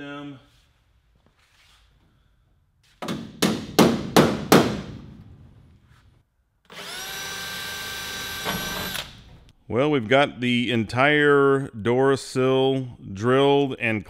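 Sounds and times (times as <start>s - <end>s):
sharp knocks: 3.0s - 5.2s
cordless drill whining: 6.7s - 9.3s.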